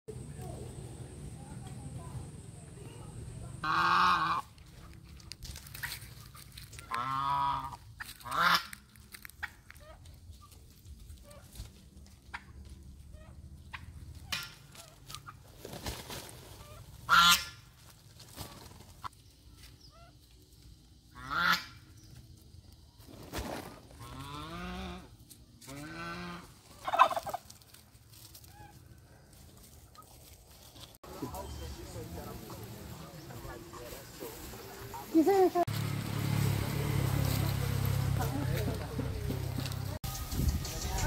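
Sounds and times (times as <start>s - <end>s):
geese honking: 3.6s - 11.7s, 16.5s - 17.9s, 21.1s - 22.0s, 24.0s - 28.9s, 31.0s - 35.7s.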